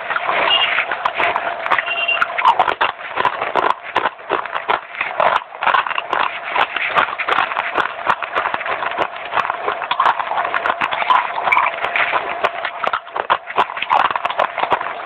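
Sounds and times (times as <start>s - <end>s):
dry clay being crunched and chewed: 0.0s - 15.0s.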